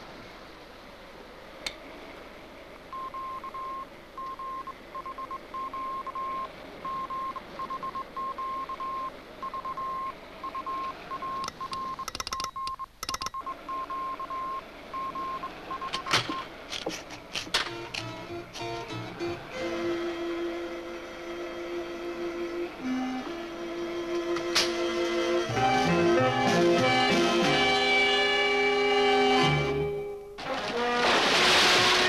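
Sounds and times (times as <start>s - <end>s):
morse code beeps: 2.9s - 16.5s
sharp clicks and crackles: 10.8s - 13.4s.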